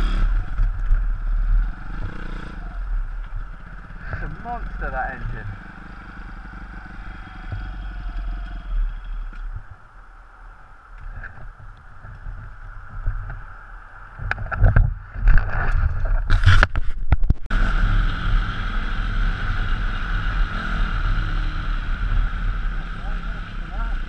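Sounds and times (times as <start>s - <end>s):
pit bike engine rumble: 0.0s - 24.0s
wind rushing over camera: 8.2s - 17.6s.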